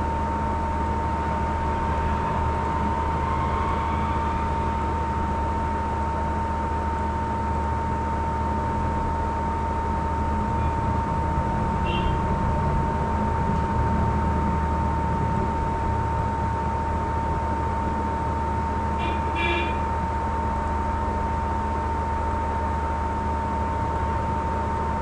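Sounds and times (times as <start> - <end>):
thin high whine: 0.0 - 12.3
low electrical hum: 0.0 - 25.0.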